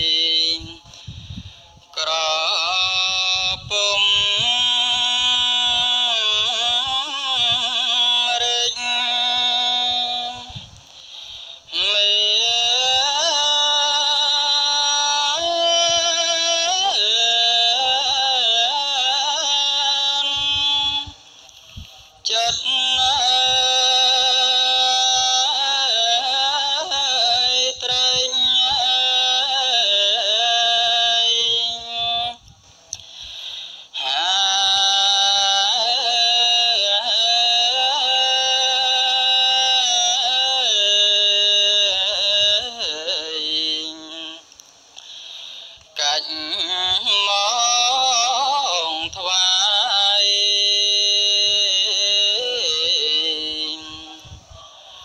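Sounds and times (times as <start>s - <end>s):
person chanting into a microphone: 0.0s - 10.8s, 11.6s - 32.4s, 33.9s - 44.5s, 45.9s - 55.0s
person chanting solo: 34.0s - 44.4s, 46.0s - 54.7s.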